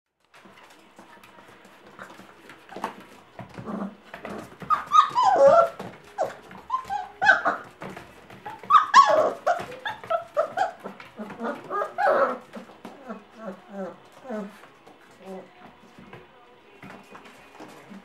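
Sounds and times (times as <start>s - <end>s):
paws scrabbling on wooden floor: 0.2s - 18.0s
puppies yelping and whining: 2.0s - 15.5s.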